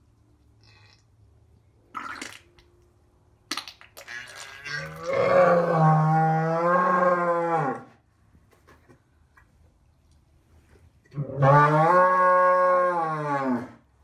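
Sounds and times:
cow mooing: 4.7s - 7.9s, 11.2s - 13.8s.

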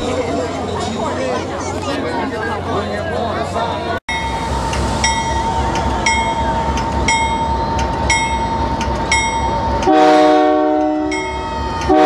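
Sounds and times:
low engine rumble: 0.0s - 12.0s
locomotive bell clanging: 4.1s - 10.0s, 10.8s - 12.0s.

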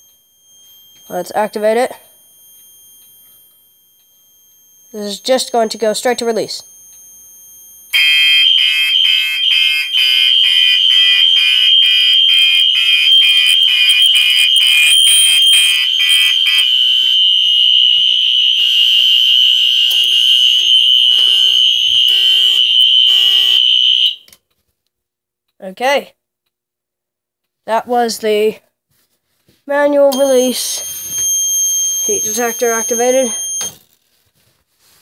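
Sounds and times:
pulsing alarm horn: 0.0s - 24.2s, 30.2s - 33.8s
steady high-pitched alarm tone: 0.0s - 24.2s, 30.1s - 33.9s.

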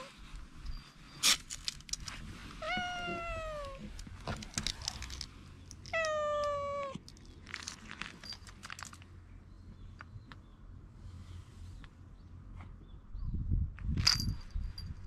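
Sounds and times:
cat meowing: 2.6s - 3.9s, 5.9s - 7.0s.

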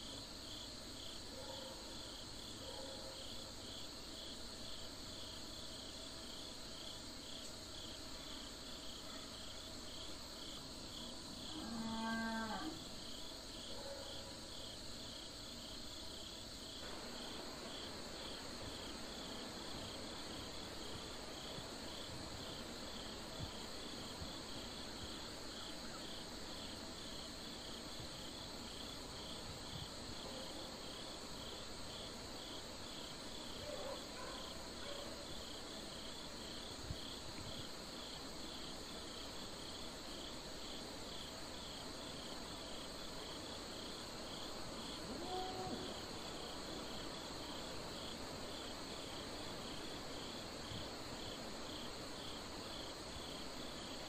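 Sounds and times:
insect chirping: 0.0s - 54.0s
insects trilling: 0.0s - 54.0s.

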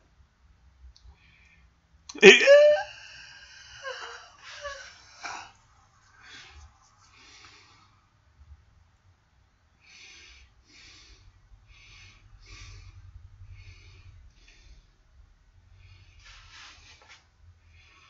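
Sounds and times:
breathing through the nose: 9.8s - 15.0s.

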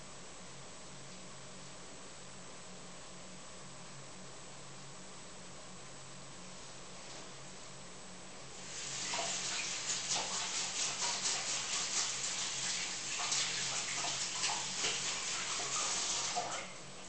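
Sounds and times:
tap water splashing into sink: 8.9s - 16.8s.

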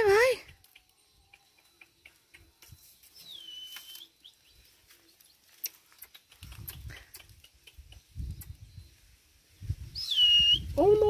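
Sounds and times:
high whistled call: 3.2s - 4.5s, 9.8s - 10.8s
sharp clicks: 5.6s - 8.6s.

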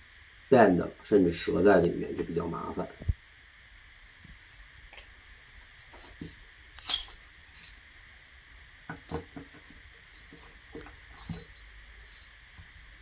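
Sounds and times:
metal clinks and knocks: 6.8s - 7.8s, 8.9s - 12.4s.

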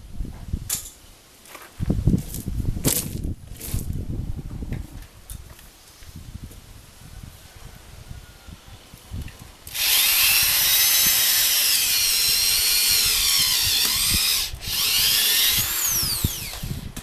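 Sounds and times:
cordless drill whining: 9.7s - 17.0s.

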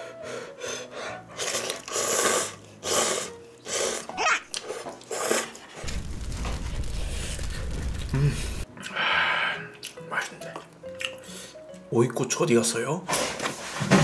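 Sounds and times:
noodles slurped: 1.4s - 5.8s
low rumble: 5.8s - 8.6s.

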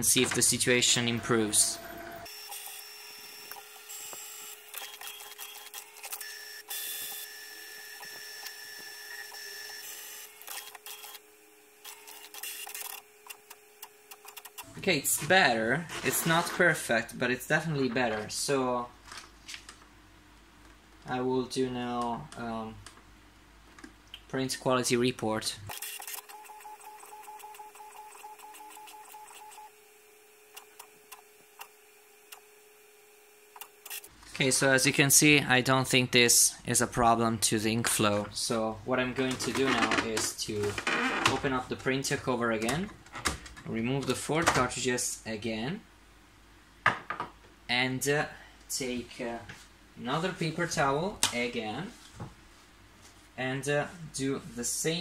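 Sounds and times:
printer motors whining: 0.2s - 14.7s, 25.7s - 32.6s.

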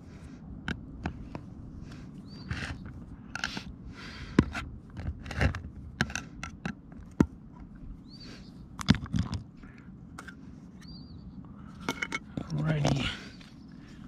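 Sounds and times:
metal lid clicking and scraping: 11.8s - 12.4s.

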